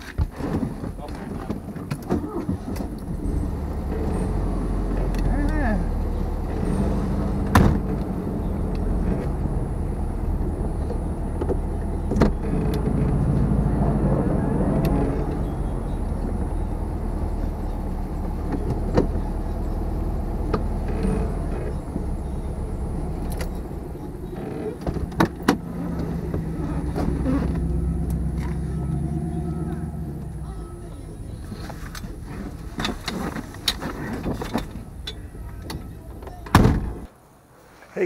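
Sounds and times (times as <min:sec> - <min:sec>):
car engine low rumble: 0:00.4 - 0:37.1.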